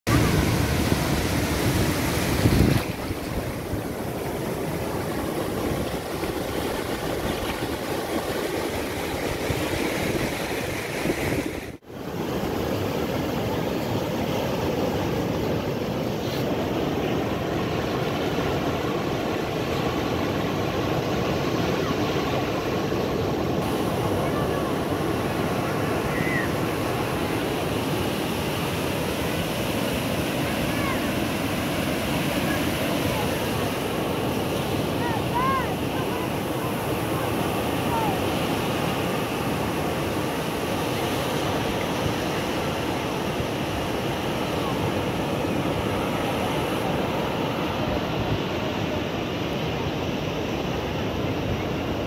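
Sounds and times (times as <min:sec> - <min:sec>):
waves breaking on beach: 0:00.1 - 0:52.0.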